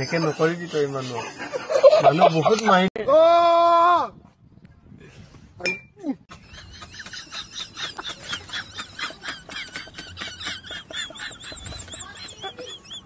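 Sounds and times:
man laughing in squealing bursts: 0:00.0 - 0:02.6, 0:06.4 - 0:13.0.

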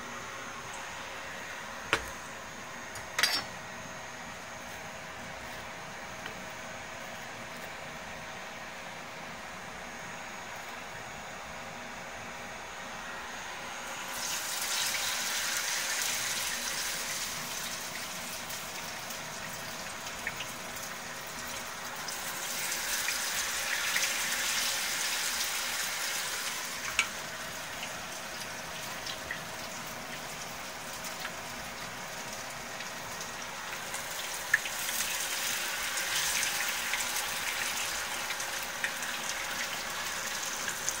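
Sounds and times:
hot oil sizzling: 0:13.7 - 0:41.0.

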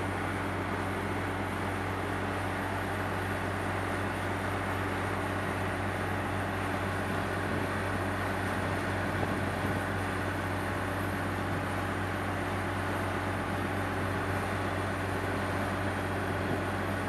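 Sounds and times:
drilling rig and compressor humming: 0:00.0 - 0:11.2.

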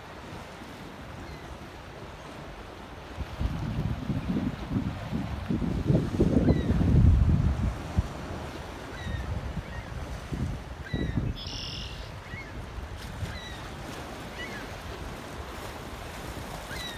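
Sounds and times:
waves over open water: 0:00.0 - 0:16.9
wind buffeting microphone: 0:02.0 - 0:11.4, 0:12.0 - 0:16.9
short high bird calls: 0:10.9 - 0:12.5.

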